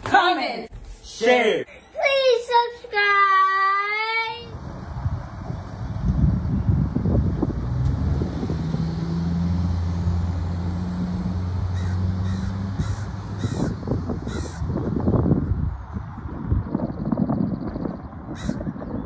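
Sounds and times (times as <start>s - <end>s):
bird calling: 11.7s - 14.8s.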